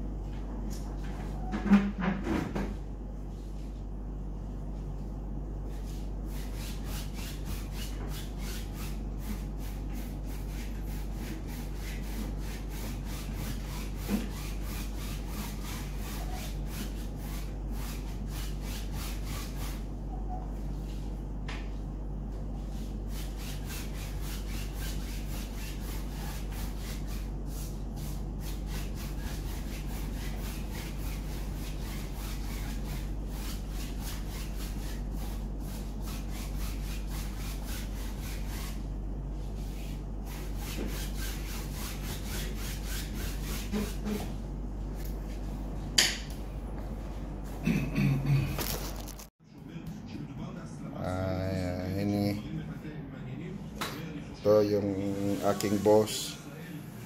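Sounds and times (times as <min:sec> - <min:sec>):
low steady hum: 0:00.0 - 0:57.0
paintbrush scrubbing canvas: 0:05.7 - 0:19.9, 0:22.6 - 0:38.8, 0:39.4 - 0:44.4, 0:54.7 - 0:56.3.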